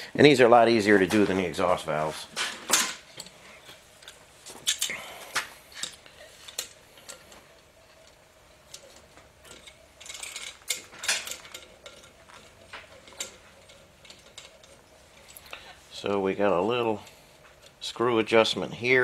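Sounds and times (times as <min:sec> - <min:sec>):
metal tool clinks and knocks: 0:08.7 - 0:15.4.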